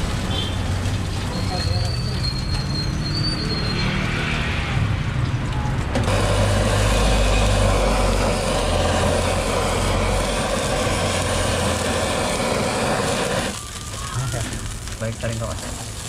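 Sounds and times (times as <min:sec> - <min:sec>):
blowtorch hissing: 0:05.9 - 0:16.0.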